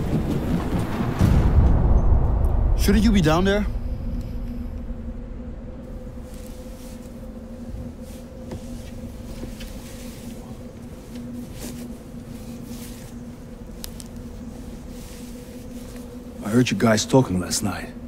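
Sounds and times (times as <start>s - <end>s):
low rumble: 0.0s - 16.5s
steady low hum: 0.0s - 18.0s
faint rustles and ticks: 6.1s - 17.9s.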